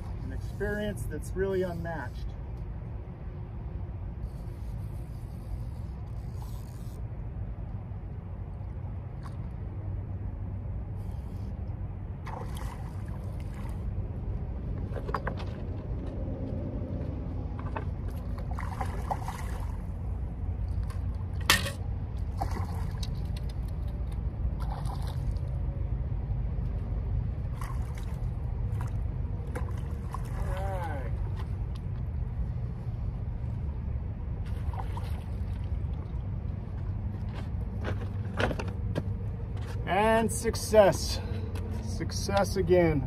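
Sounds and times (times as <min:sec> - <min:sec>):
steady low rumble: 0:00.0 - 0:43.0
water lapping and trickling: 0:08.5 - 0:10.2, 0:12.1 - 0:16.0, 0:17.0 - 0:25.8, 0:27.3 - 0:38.0.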